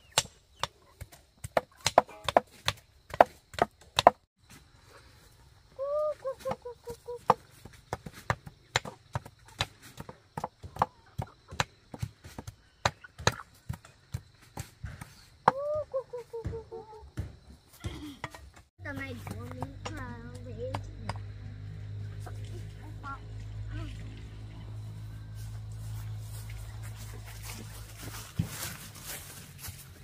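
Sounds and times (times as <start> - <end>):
knives chopping on wood: 0.0 - 4.3, 7.2 - 15.6.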